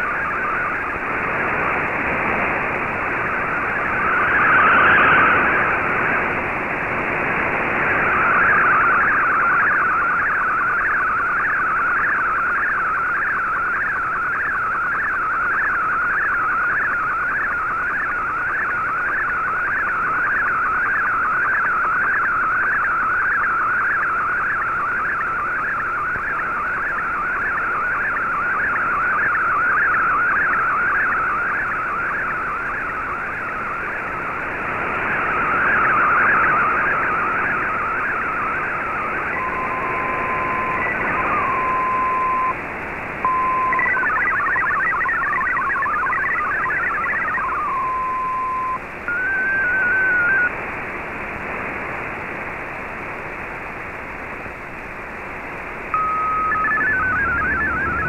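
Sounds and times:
radio hiss: 0.0s - 10.4s, 25.2s - 44.1s, 46.5s - 58.0s
warbling data tone: 3.4s - 6.3s, 7.7s - 42.6s, 43.3s - 50.5s, 56.0s - 58.0s.

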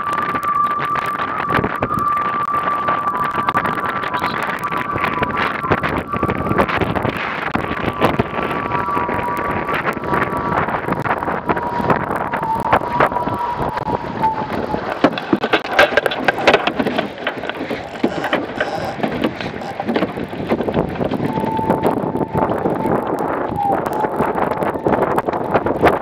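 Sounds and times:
water rushing along a hull: 0.0s - 26.0s
wind buffeting microphone: 0.0s - 26.0s
faint whistling tone: 0.1s - 6.8s, 21.3s - 25.0s
sharp knocks and splashes: 13.8s - 21.9s.

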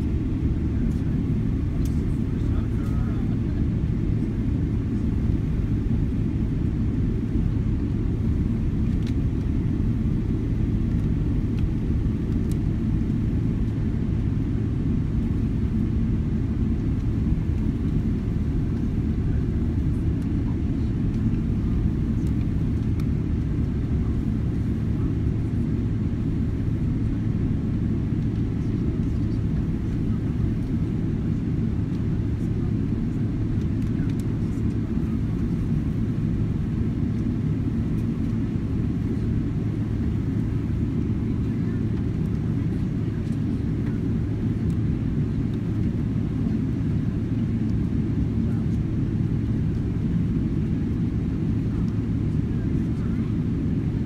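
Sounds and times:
aircraft engines low rumble: 0.0s - 54.0s
steady low hum: 0.0s - 54.0s.

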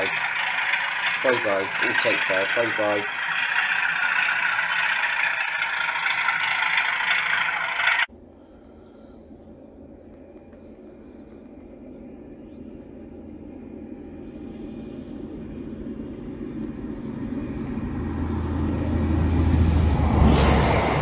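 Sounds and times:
train rumbling: 0.0s - 8.6s, 9.2s - 21.0s.

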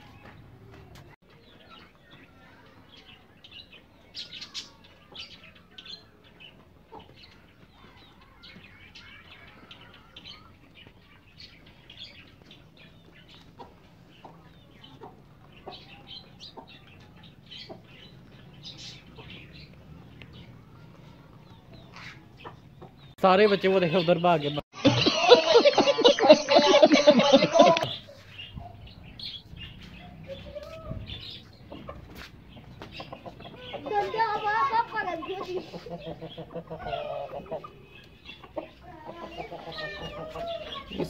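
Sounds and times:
chicks chirping: 3.7s - 24.4s, 27.8s - 41.0s
hens clucking: 6.5s - 9.8s, 10.7s - 20.4s, 21.0s - 24.0s, 29.4s - 41.0s.

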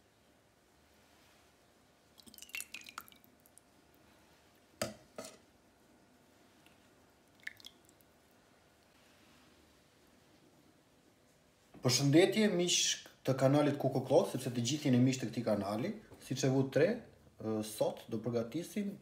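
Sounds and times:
soup splashing and dripping: 2.1s - 4.0s, 6.6s - 8.2s.

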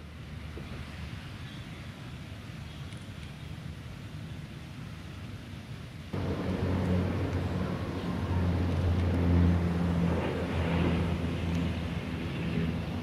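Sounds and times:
aircraft engine drone: 6.1s - 13.0s.

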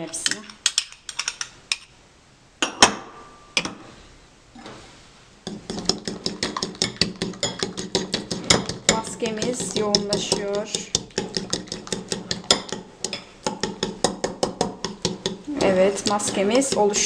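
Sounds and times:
spoon beating mixture in bowl: 0.0s - 1.5s, 5.4s - 17.0s
spoon clinking on bowls: 6.2s - 9.1s.

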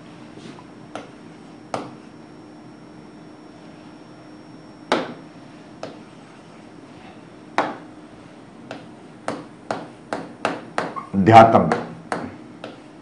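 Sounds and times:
low room hum: 0.0s - 13.0s
stylus tapping on whiteboard: 5.8s - 6.0s, 8.7s - 11.1s, 11.7s - 12.9s.

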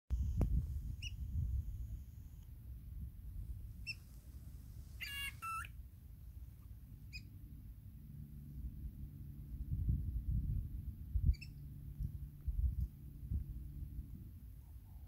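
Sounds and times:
bird calling metallic notes: 5.0s - 5.7s
rasping bird call: 5.0s - 5.7s
low rumble: 5.8s - 14.9s.

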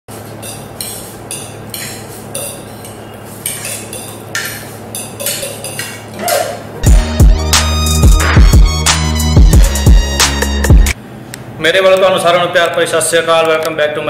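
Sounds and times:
forks scraping plates: 0.3s - 6.6s.

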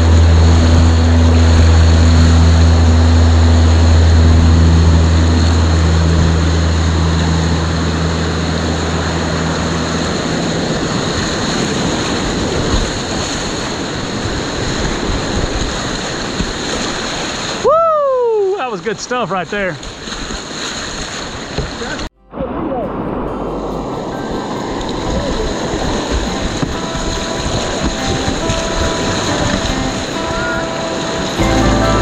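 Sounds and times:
heavy rock low note: 0.0s - 11.2s, 31.0s - 32.0s
whitewater rapids rushing: 0.0s - 32.0s.

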